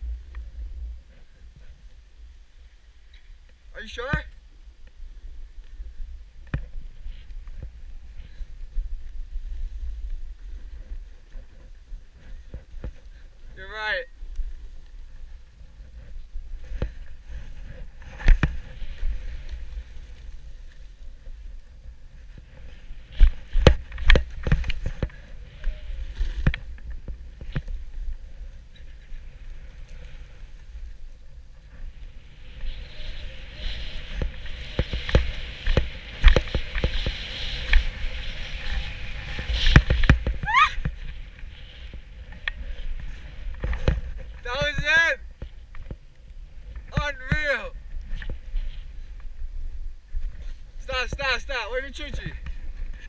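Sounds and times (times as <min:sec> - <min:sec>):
snowboard scraping over snow: 0:06.6 - 0:45.7.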